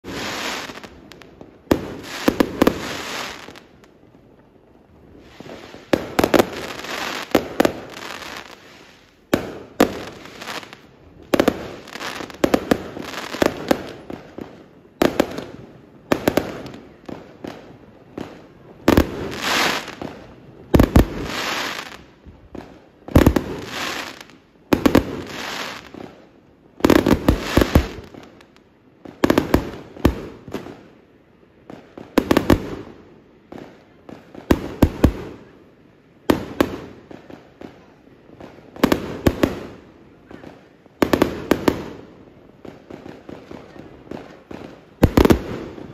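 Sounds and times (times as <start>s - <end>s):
fireworks bangs: 0.0s - 4.2s, 5.1s - 26.2s, 26.8s - 28.4s, 36.2s - 45.9s
fireworks crackling: 0.0s - 45.9s.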